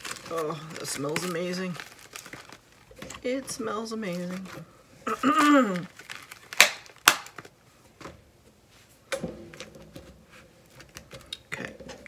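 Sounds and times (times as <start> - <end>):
paper rustling: 0.0 - 4.7.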